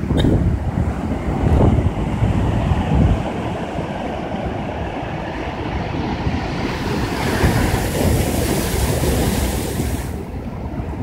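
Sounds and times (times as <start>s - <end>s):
surf crashing on rocks: 0.0s - 11.0s
wind buffeting microphone: 0.0s - 11.0s
churning whitewater hiss: 6.7s - 10.3s.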